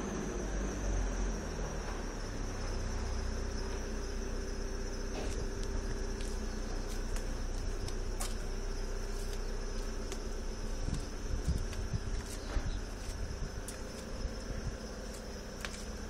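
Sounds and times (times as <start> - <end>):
high-pitched whine: 0.0 - 16.0
low hum: 0.0 - 16.0
soft low thumps: 1.7 - 16.0.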